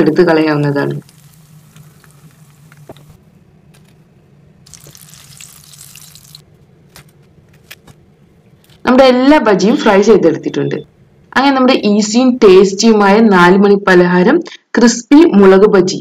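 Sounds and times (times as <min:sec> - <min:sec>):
frying oil sizzling: 0:00.0 - 0:03.2, 0:04.7 - 0:06.4.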